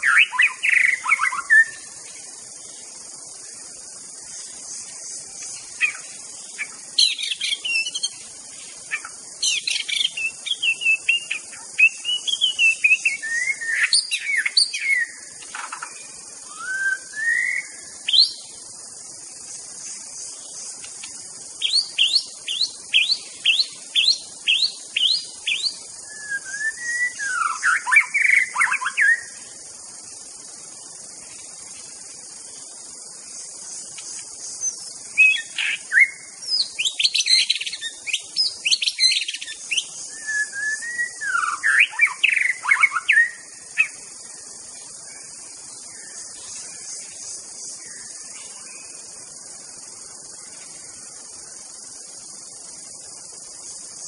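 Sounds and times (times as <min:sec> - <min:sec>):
bird singing whistled phrases: 0:07.0 - 0:08.2, 0:08.9 - 0:15.2, 0:16.5 - 0:18.4, 0:21.6 - 0:29.3, 0:35.2 - 0:43.9.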